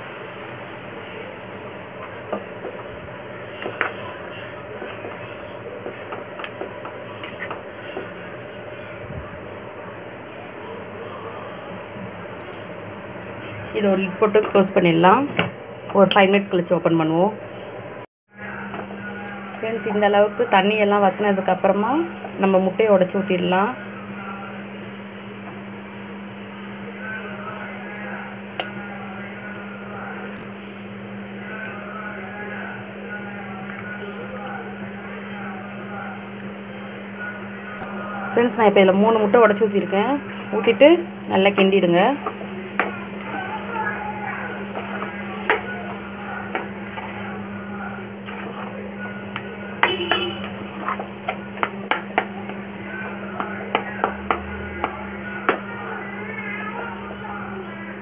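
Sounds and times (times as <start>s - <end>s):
steady low hum: 0.0s - 58.0s
spoon tapping frying pan: 41.5s - 43.4s, 44.6s - 47.1s, 49.3s - 52.7s, 53.4s - 55.6s
spatula scraping frying pan: 44.4s - 52.6s.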